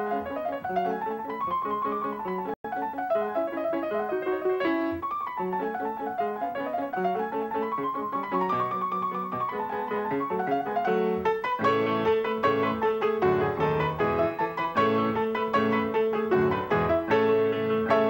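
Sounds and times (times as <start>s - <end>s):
solo piano music: 0.0s - 18.0s.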